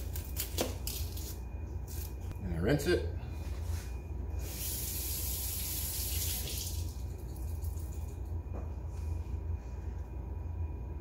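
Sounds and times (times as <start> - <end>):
tap water running: 4.9 - 6.9.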